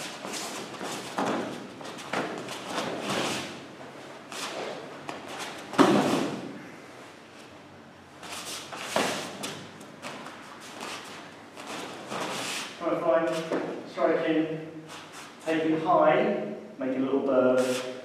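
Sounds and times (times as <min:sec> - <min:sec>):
bodies thudding on foam mats: 0:00.6 - 0:03.5, 0:04.3 - 0:06.6.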